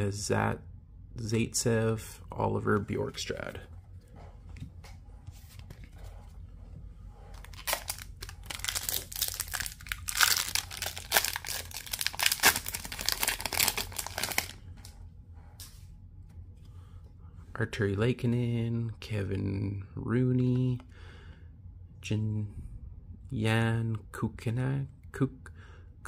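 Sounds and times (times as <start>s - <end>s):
foil wrapper crinkling and tearing: 7.4s - 14.6s.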